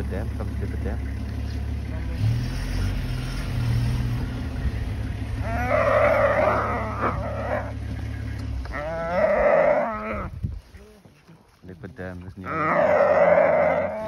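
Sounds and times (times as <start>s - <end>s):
vehicle engine idling: 0.0s - 14.0s
antelope distress cries: 5.4s - 7.8s, 8.6s - 10.4s, 12.4s - 14.0s.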